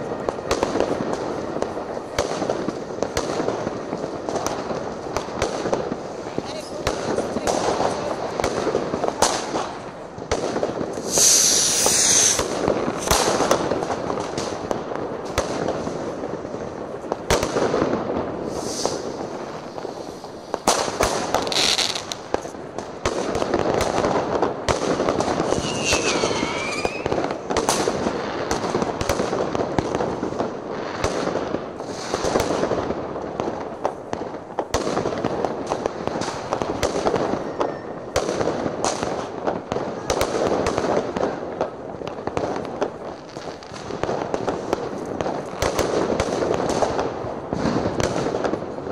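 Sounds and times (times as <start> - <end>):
fireworks bangs and crackles: 0.0 - 48.9
firework hiss: 0.1 - 17.6, 18.2 - 30.1, 31.6 - 32.8
falling firework whistle: 10.9 - 13.4, 18.4 - 19.1, 25.4 - 27.4.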